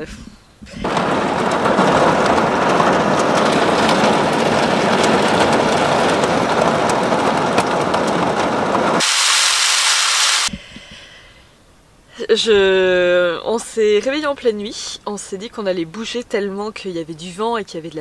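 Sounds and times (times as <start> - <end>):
storm wind rushing: 0.6 - 10.5
rain tapping on van body: 0.8 - 10.4.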